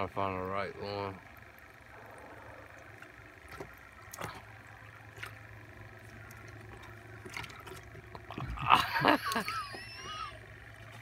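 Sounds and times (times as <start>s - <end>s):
steady low hum: 0.0s - 11.0s
water splashing in a bucket: 2.2s - 9.8s.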